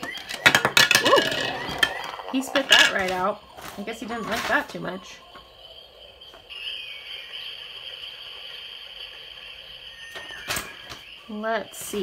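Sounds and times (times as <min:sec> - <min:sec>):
toy speaker high-pitched sound: 0:00.0 - 0:05.6.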